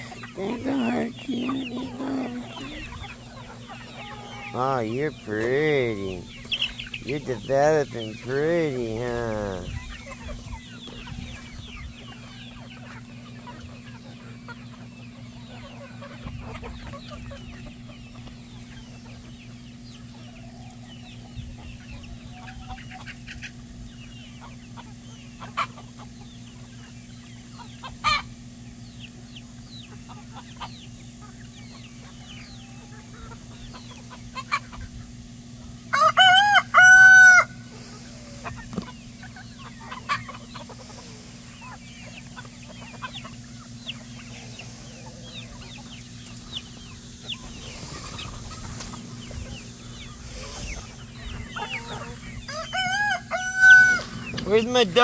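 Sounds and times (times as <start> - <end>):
chickens clucking and cheeping: 0.0 - 55.0
rooster crowing: 35.9 - 37.6, 51.8 - 54.2.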